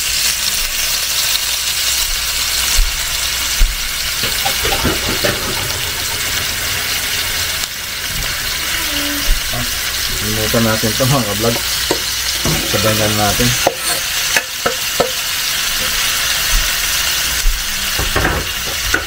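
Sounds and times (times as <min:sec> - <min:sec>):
meat sizzling in hot oil: 0:00.0 - 0:19.0.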